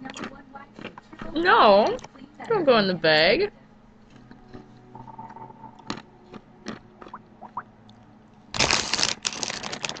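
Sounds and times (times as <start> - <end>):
snack bag crinkling: 8.6 - 10.0.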